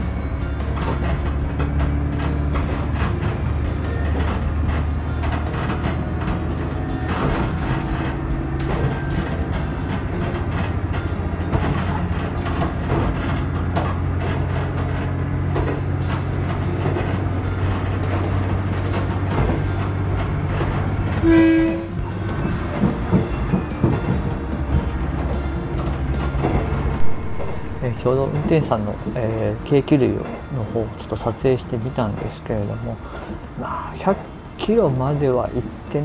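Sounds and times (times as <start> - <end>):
railcar engine drone: 0.0 - 36.0
train wheel knocks: 0.1 - 33.3
train horn blast: 21.1 - 22.1.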